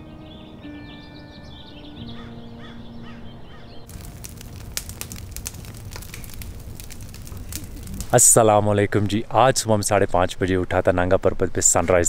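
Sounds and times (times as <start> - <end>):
bird calls: 0.0 - 4.4
campfire crackling and popping: 3.9 - 9.9.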